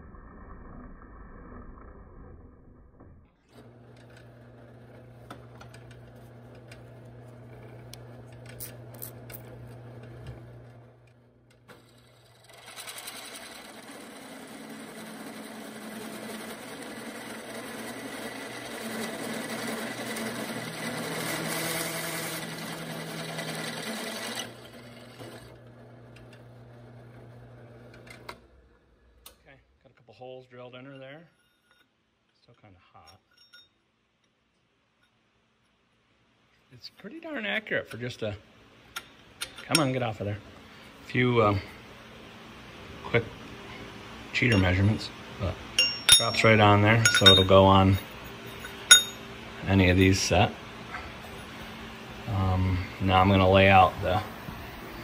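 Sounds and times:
drill press motor hum: 0:03.5 - 0:29.4, 0:38.8 - 0:55.0
drill bit cutting steel: 0:11.9 - 0:25.4, 0:45.8 - 0:49.2.

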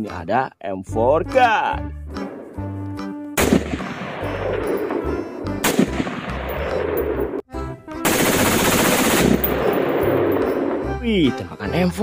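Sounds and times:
rifle shots with echo: 0:03.4 - 0:07.4, 0:08.0 - 0:10.9.

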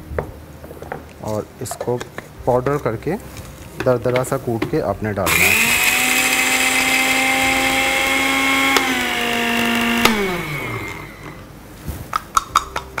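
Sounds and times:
blender motor whine: 0:05.3 - 0:11.4
blender switch click: 0:07.6 - 0:11.0.

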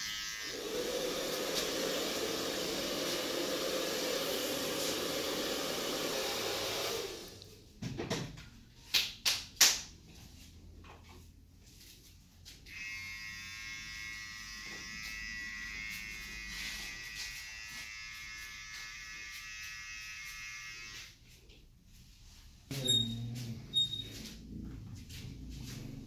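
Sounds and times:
electric hair trimmer buzzing: 0:00.0 - 0:07.0, 0:12.7 - 0:21.2.

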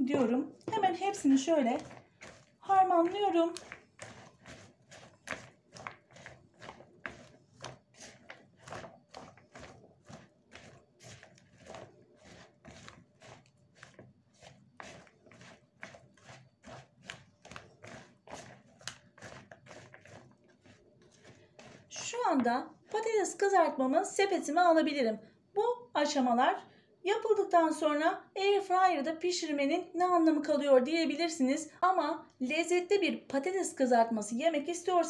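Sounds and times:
spatula stirring potato sticks in bowl: 0:00.0 - 0:24.4.

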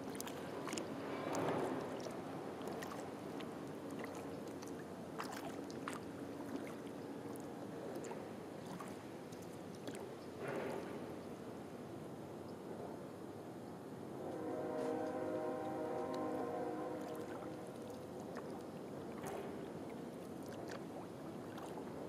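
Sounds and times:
paddle swishing in water: 0:00.0 - 0:11.2, 0:14.6 - 0:22.0
water dripping: 0:15.6 - 0:21.9.

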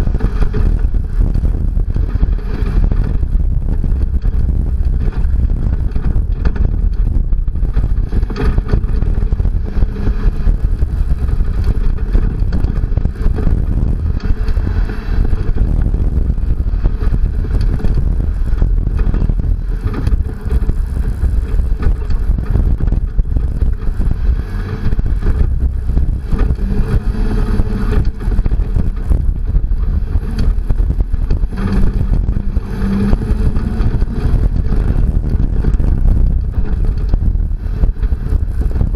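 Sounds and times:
truck engine rumble: 0:00.0 - 0:38.9
tyres on rough dirt: 0:00.0 - 0:38.9
wind buffeting camera: 0:00.0 - 0:38.9.

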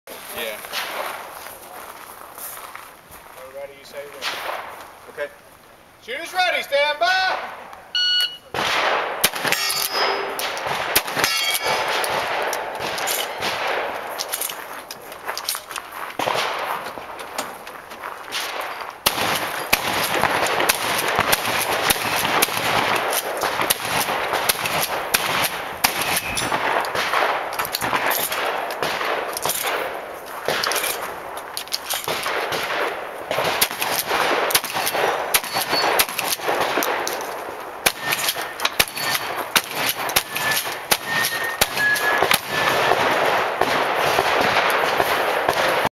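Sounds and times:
shotgun shots: 0:04.2 - 0:05.3, 0:08.4 - 0:14.7, 0:16.2 - 0:17.5, 0:18.3 - 0:45.9
metallic rings: 0:09.5 - 0:10.4, 0:11.2 - 0:11.9, 0:25.9 - 0:26.6, 0:34.8 - 0:36.0, 0:38.0 - 0:39.4, 0:40.2 - 0:42.2.

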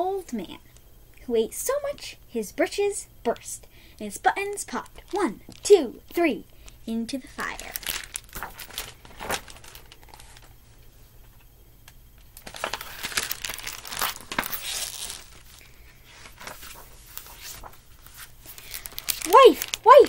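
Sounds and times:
paper rustling as pages turn: 0:07.2 - 0:10.6, 0:12.4 - 0:20.0.

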